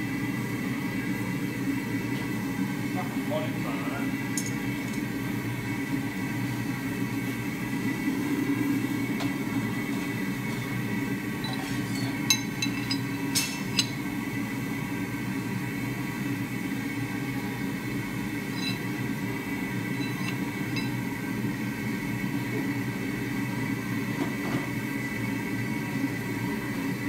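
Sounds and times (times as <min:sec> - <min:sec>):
low rumbling workshop drone: 0:00.0 - 0:27.0
metal clinking: 0:11.4 - 0:14.0, 0:18.5 - 0:18.9, 0:19.9 - 0:21.0.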